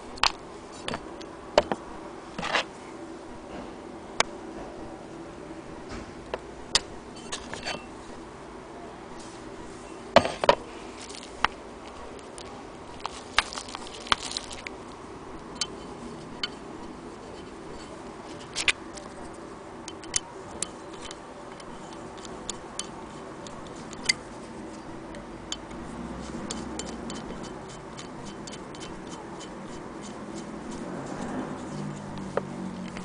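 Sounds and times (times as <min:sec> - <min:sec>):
screwdriver working on wood: 0:15.6 - 0:33.0
clicks of parts being handled: 0:17.4 - 0:24.2.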